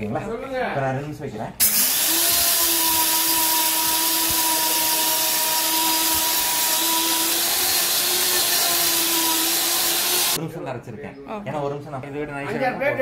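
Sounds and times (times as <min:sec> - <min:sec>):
grinder high whine: 0:01.6 - 0:10.4.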